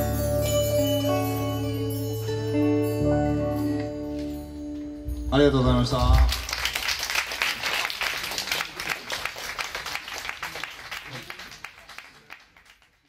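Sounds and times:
audience applause: 6.1 - 13.0.

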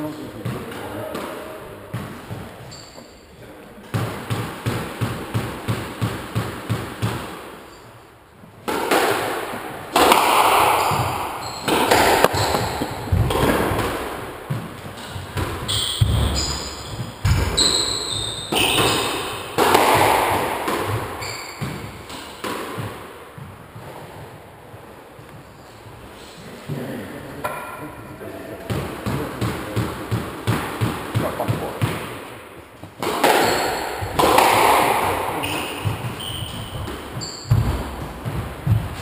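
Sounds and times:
shoes squeaking on floor: 0.1 - 3.4, 10.6 - 26.5, 33.2 - 34.5, 35.2 - 39.0
ball hitting court walls: 0.4 - 3.1, 3.8 - 7.7, 8.6 - 24.4, 27.4 - 28.0, 28.6 - 39.0
squash ball bouncing on wooden floor: 3.9 - 7.4, 8.7 - 24.4, 28.7 - 32.3, 32.9 - 39.0
racket striking ball: 3.9 - 7.6, 8.6 - 24.0, 27.4 - 27.8, 28.6 - 32.3, 32.9 - 39.0.

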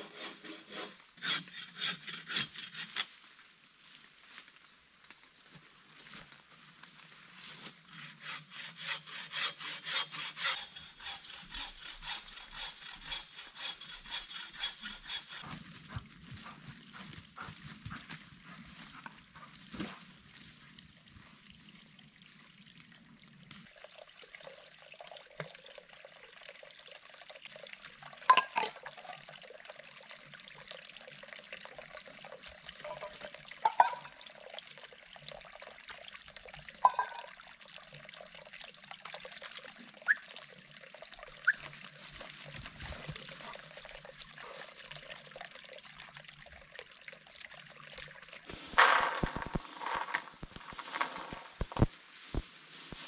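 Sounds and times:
bow saw cutting log: 0.0 - 3.1, 7.9 - 17.5.

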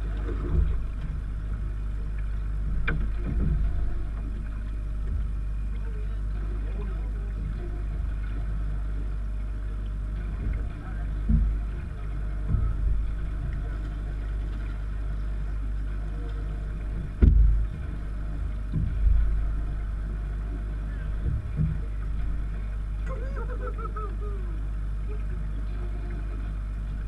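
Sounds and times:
boat low rumble: 0.0 - 27.0
dull thumps: 10.4 - 13.7, 16.9 - 19.5
excited voice calls: 23.1 - 24.6.

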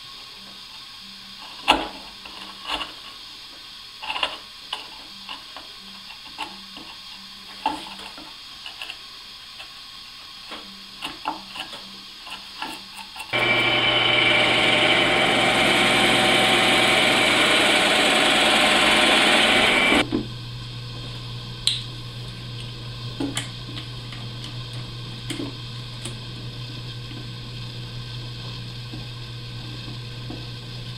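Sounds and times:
drill press boring wood: 12.3 - 20.0.

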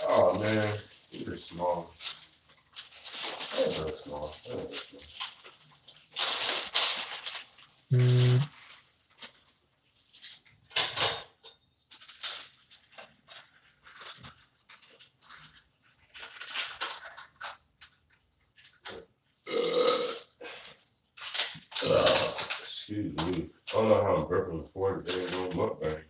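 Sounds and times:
low vocal grunt: 21.8 - 22.5.

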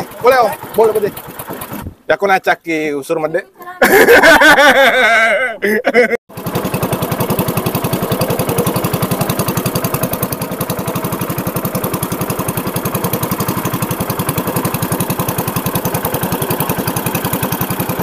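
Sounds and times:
motorboat engine puttering: 0.0 - 2.0, 6.3 - 18.0.

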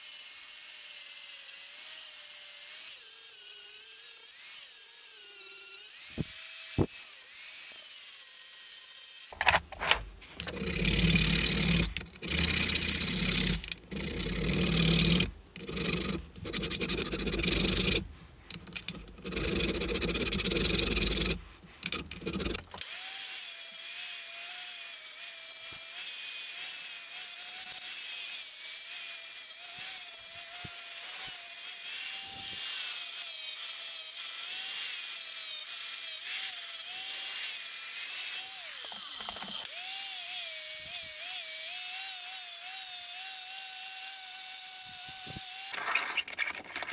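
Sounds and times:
angle grinder whining on steel: 0.0 - 18.0, 18.6 - 46.9
hand file rasping: 9.3 - 23.1, 25.7 - 45.8.

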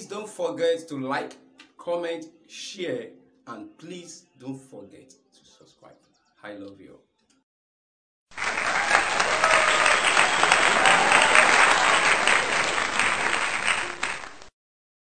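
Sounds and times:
crowd applause: 8.3 - 14.5.

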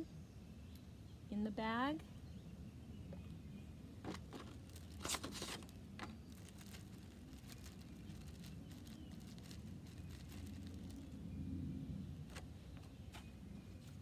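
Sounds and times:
faint low rumble: 0.0 - 14.0
plastic bag crinkling: 4.1 - 11.3.

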